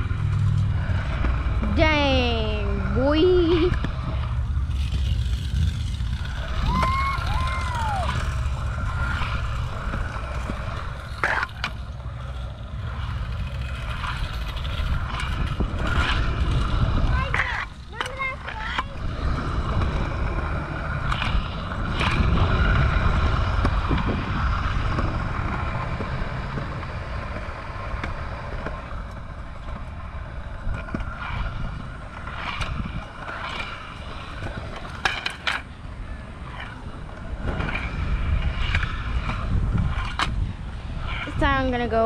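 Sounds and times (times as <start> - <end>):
scooter wheels rumbling on concrete: 0.0 - 42.0
wind buffeting microphone: 0.0 - 42.0
wheels knocking over seams: 3.5 - 28.9.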